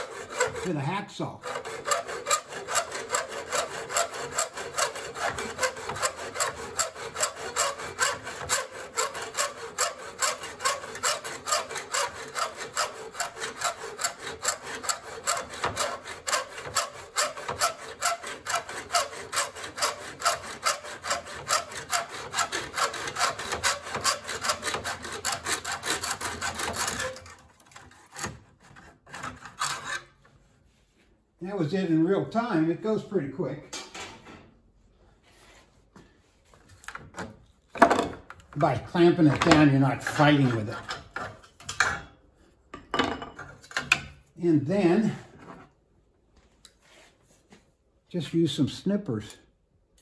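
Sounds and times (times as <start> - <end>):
hacksaw cutting metal trim: 0.0 - 30.2, 36.8 - 42.2.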